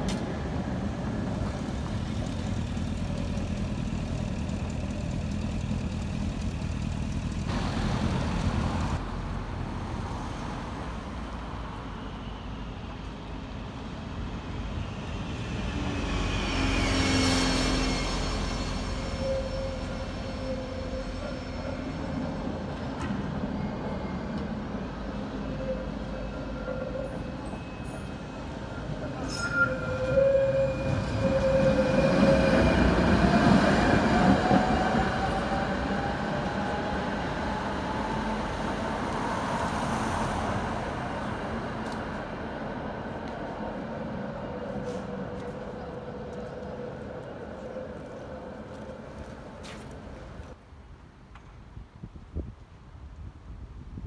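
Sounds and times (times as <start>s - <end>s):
tram wheels rumbling and squealing: 0.0s - 10.8s, 11.4s - 50.6s
tram motor whine: 14.2s - 50.6s.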